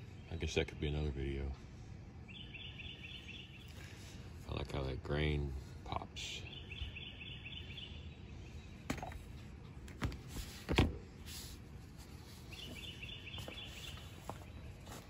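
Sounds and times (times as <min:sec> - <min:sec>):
bird chirping: 0:02.2 - 0:04.6, 0:05.2 - 0:09.6, 0:12.0 - 0:15.0.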